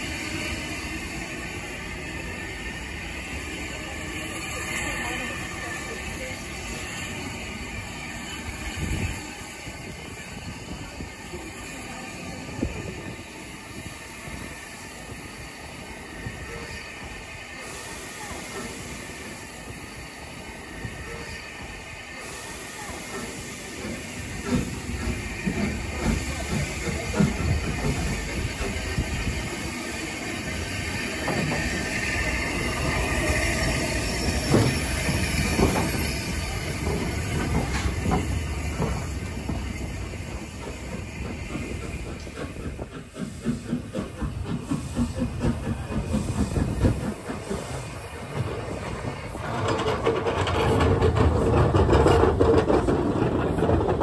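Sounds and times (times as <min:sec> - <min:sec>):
steam hissing: 0:00.0 - 0:54.0
train clanking on rails: 0:00.0 - 0:54.0.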